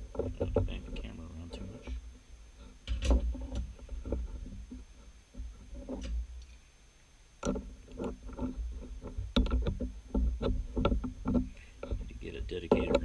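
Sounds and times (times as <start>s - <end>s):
metal clanks and knocks: 0.0s - 1.2s, 2.8s - 4.7s, 7.4s - 13.0s.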